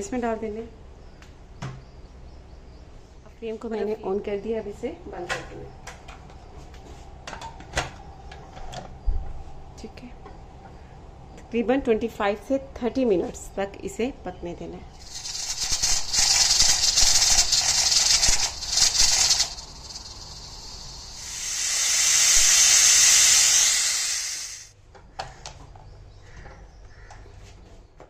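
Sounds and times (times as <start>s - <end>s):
pressure cooker steam hiss: 15.0s - 24.7s.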